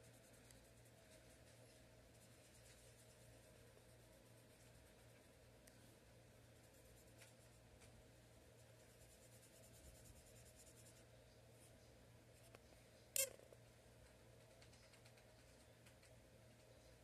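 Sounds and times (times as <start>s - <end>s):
marker on whiteboard: 0.0s - 5.4s, 6.5s - 11.8s
low steady hum: 0.0s - 17.0s.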